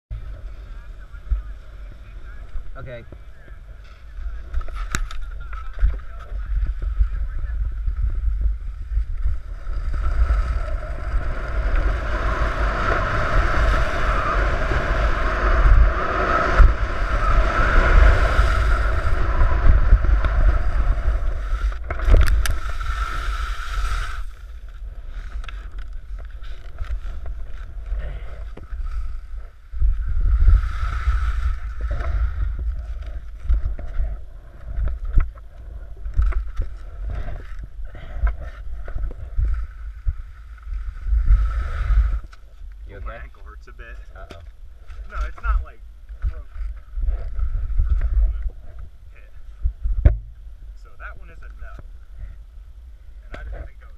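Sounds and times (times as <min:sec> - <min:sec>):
wind rushing over microphone: 0:00.1 - 0:53.9
skis scraping over snow: 0:00.2 - 0:37.5.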